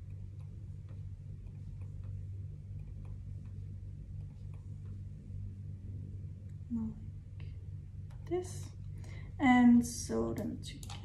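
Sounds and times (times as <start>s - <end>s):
computer mouse clicking: 0.0s - 5.0s, 10.4s - 11.0s
steady low hum: 0.0s - 11.0s.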